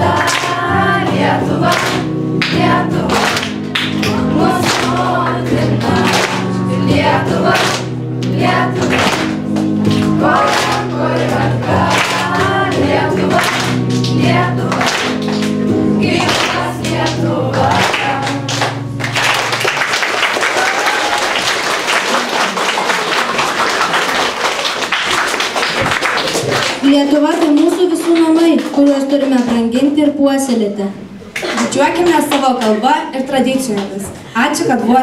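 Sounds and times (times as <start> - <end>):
group singing in unison: 0.0 - 19.3
applause: 0.2 - 0.6, 1.7 - 5.1, 6.0 - 6.6, 7.5 - 10.9, 11.8 - 12.4, 13.4 - 15.6, 16.2 - 16.7, 17.7 - 29.5, 31.3 - 32.8.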